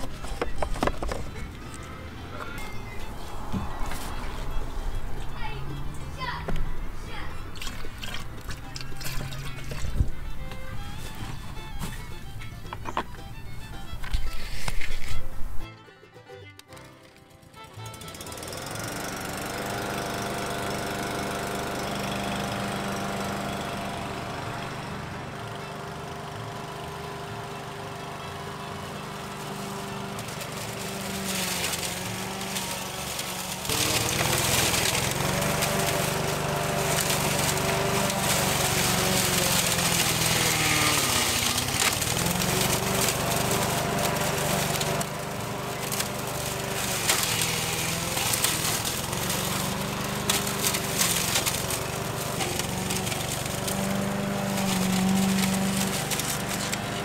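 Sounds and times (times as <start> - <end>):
mower blade shredding branches: 0.0 - 15.7, 16.6 - 57.0
lawn mower running: 0.0 - 57.0.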